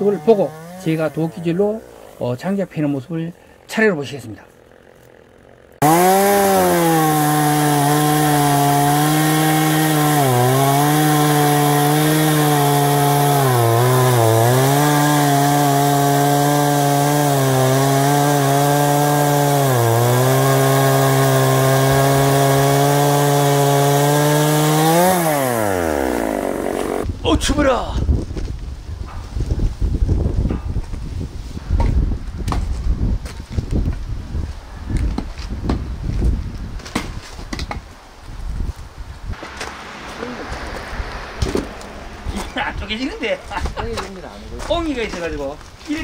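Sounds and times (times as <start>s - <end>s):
chainsaw cutting wood: 0.0s - 2.2s, 4.6s - 27.1s, 39.3s - 45.2s.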